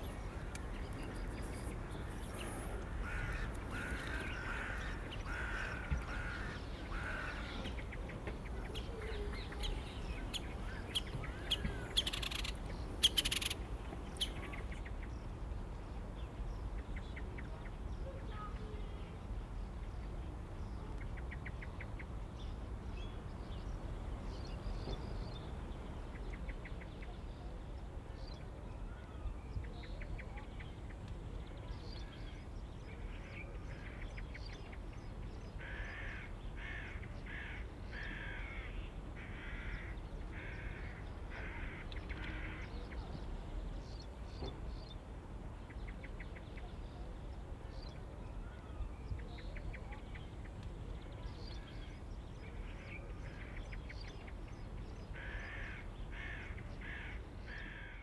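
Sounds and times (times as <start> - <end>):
crows cawing: 2.9 - 7.8, 35.6 - 42.7, 55.2 - 58.0
rapid ticking bird calls: 9.5 - 15.1.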